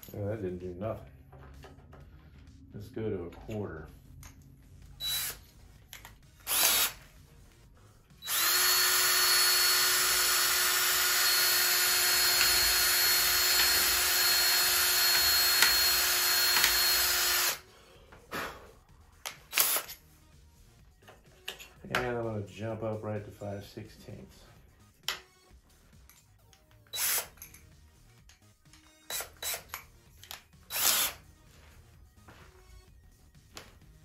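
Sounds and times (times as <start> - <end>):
cordless drill whining: 5.0 - 5.5, 6.4 - 7.0, 8.2 - 17.6, 19.5 - 20.0, 26.8 - 27.6, 28.9 - 31.2.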